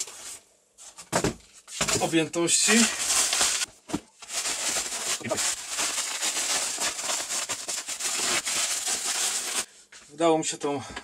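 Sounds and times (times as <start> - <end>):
bubble wrap crinkling: 2.6 - 9.7.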